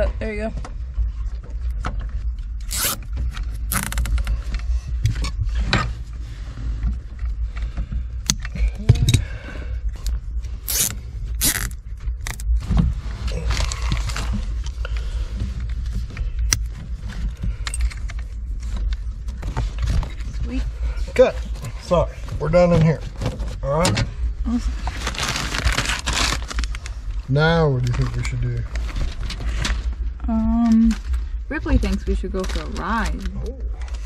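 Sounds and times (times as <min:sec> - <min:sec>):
steady low hum: 0:00.0 - 0:34.0
wires scraping and rasping: 0:02.4 - 0:07.9, 0:10.0 - 0:23.8, 0:24.5 - 0:27.2.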